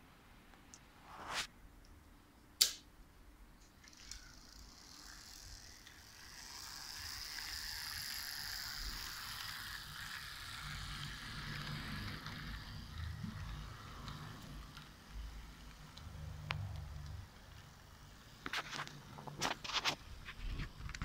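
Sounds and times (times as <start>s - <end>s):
sharp click: 2.6s - 2.9s
model train motor whirring: 3.8s - 21.0s
wheels rolling on track: 3.8s - 21.0s.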